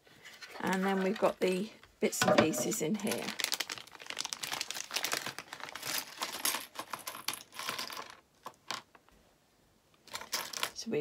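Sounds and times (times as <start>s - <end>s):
plastic bag crinkling: 2.6s - 8.2s.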